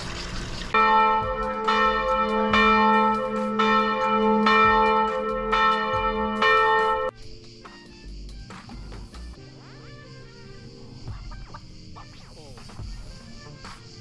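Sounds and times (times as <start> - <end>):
church bell tolling: 0.8 - 7.1.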